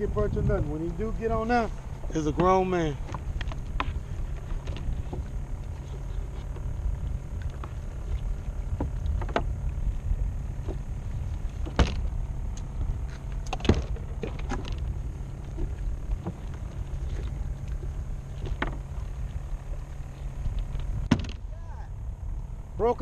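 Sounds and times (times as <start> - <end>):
choppy water: 0.0 - 23.0
wind rumble: 0.0 - 23.0
gear knocking against hull: 10.5 - 12.2.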